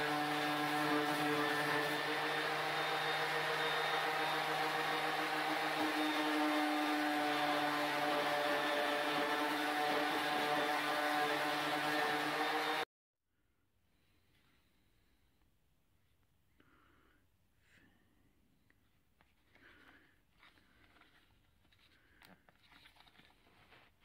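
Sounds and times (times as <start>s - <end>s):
orbital sander motor whine: 0.0s - 12.8s.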